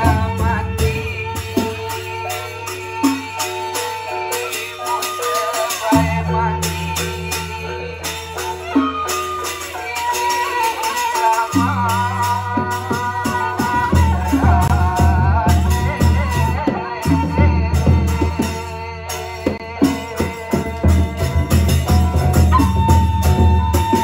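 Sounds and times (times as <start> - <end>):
bamboo flutes melody: 0.0 - 24.0.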